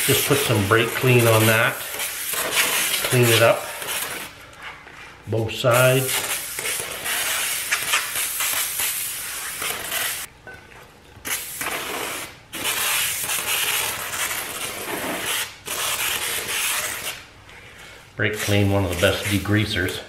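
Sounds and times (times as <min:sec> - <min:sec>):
aerosol can spraying: 0:06.2 - 0:10.3.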